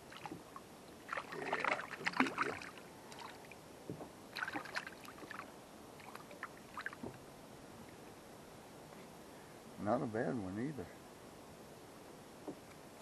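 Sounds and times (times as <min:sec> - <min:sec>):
fish splashing in water: 0:01.1 - 0:03.6, 0:04.4 - 0:07.0.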